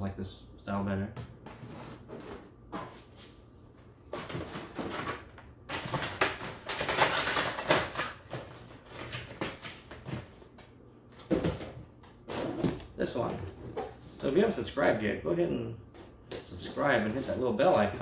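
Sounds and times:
packaging rustling and crinkling: 4.2 - 10.5.

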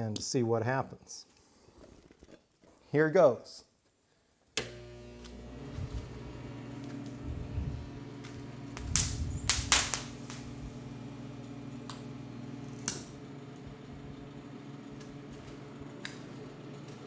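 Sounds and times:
arc welder humming: 4.6 - 17.0
overheating wires cracking and popping: 8.2 - 10.8, 12.8 - 13.2.

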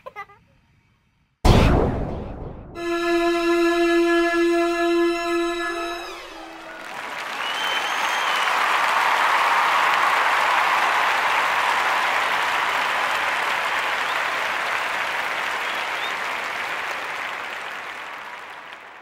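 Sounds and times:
crowd applause: 5.9 - 19.0.

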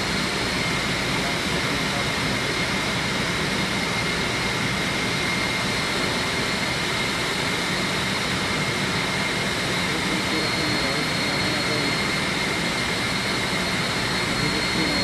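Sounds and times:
high-pitched whine: 0.0 - 15.0
machinery rushing hum: 9.2 - 15.0.

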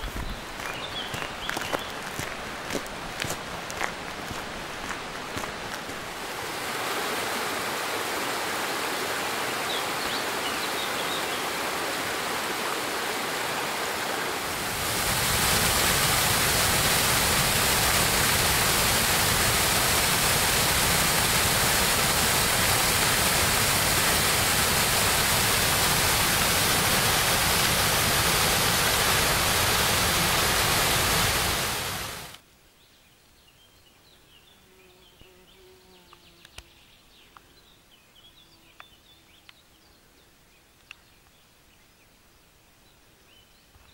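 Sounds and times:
stream rushing over stones: 0.0 - 32.4
waterfall pouring into pool: 10.3 - 32.4.

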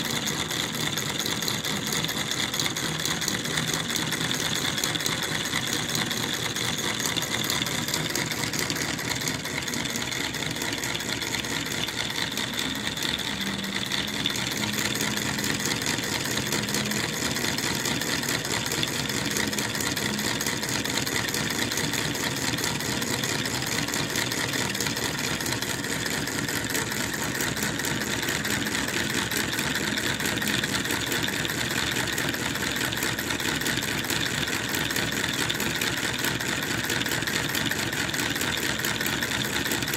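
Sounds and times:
model engine ticking clatter: 0.0 - 39.9.

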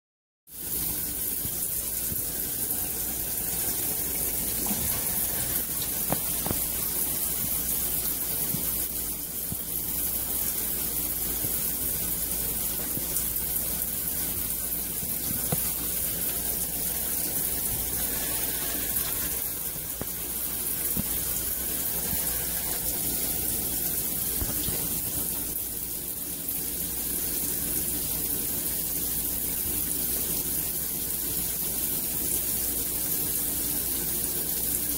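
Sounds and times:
shower spraying water: 0.5 - 34.9.

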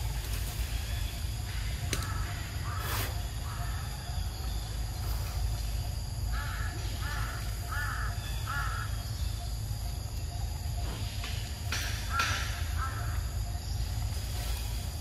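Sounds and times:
crow cawing: 2.0 - 3.9, 6.3 - 9.1, 12.0 - 13.3.

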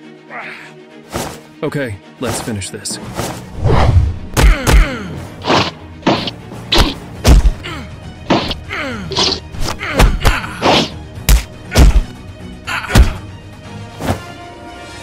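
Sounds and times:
background music: 0.0 - 15.0
punch and kick impacts: 3.7 - 7.6, 8.3 - 8.6, 9.6 - 12.1, 12.9 - 13.2.

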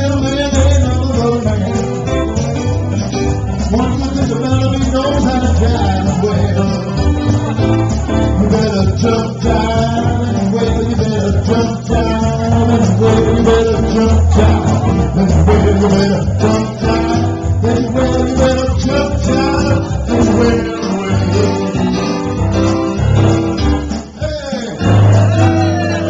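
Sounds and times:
music with singer: 0.0 - 26.0.

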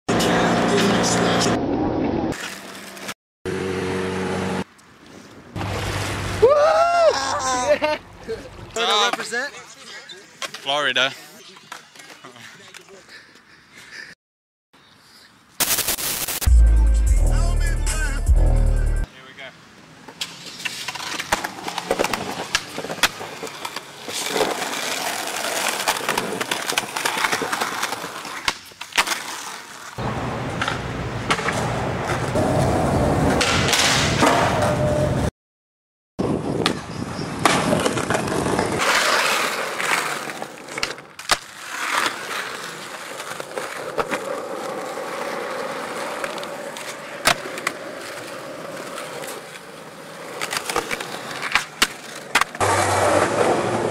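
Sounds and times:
skateboard wheels rolling on concrete: 0.1 - 13.9, 19.0 - 35.3, 36.2 - 53.9
skateboard popping and landing: 20.1 - 34.9, 36.5 - 53.9.

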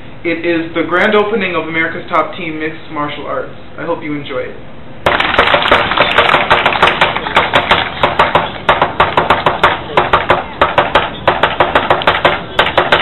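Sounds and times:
wooden staffs clacking: 5.2 - 13.0.

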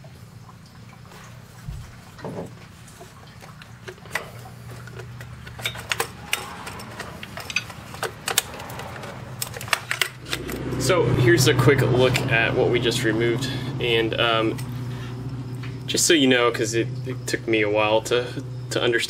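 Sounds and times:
plastic clicks and rattles: 3.8 - 10.6.

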